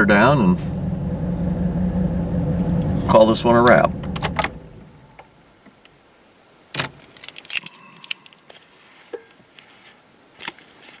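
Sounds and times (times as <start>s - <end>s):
car keys jangling and clicking: 6.8s - 8.4s.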